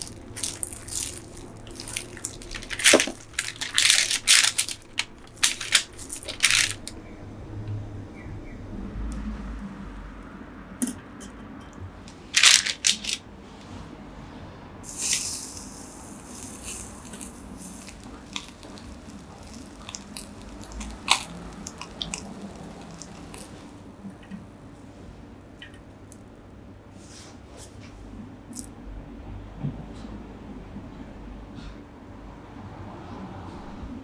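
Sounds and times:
fish grilling crackles and pops: 0.0s - 7.0s, 14.8s - 23.9s
short hiss: 14.8s - 17.8s.

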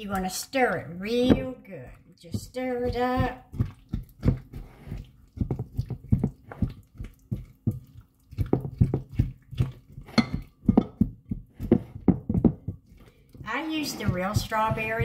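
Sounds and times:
spatula knocking bowl: 5.4s - 15.0s.

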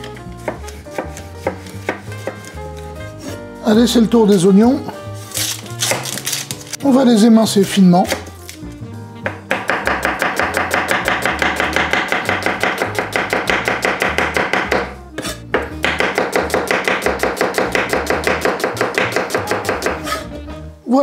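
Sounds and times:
knife slicing on wooden board: 0.1s - 3.4s, 5.2s - 6.8s, 9.3s - 20.3s.

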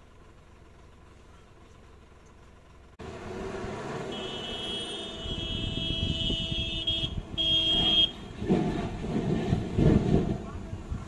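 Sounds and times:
engines running: 0.0s - 11.0s
vehicle horn high steady tone: 4.0s - 8.3s.

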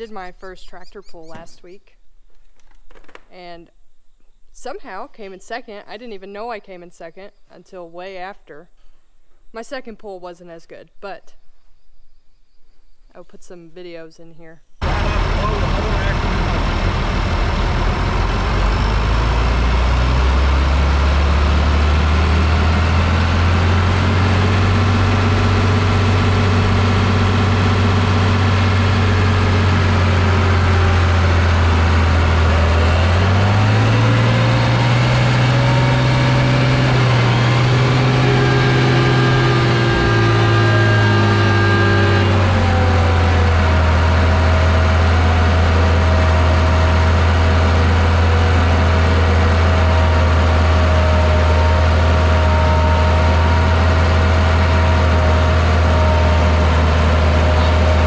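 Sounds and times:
tractor engine running under load: 14.8s - 58.0s.

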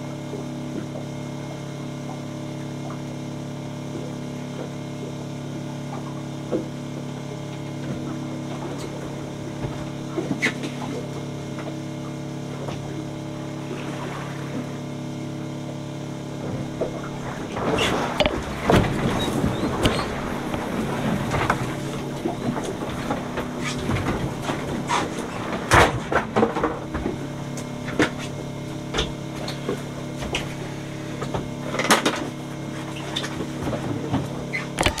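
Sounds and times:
boat engine running: 0.0s - 35.0s
knocks and clatters on board: 16.5s - 30.5s, 31.2s - 35.0s.

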